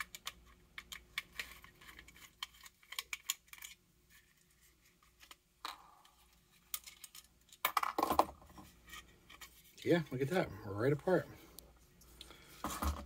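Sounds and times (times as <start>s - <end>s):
plastic parts clicking: 0.0s - 3.8s.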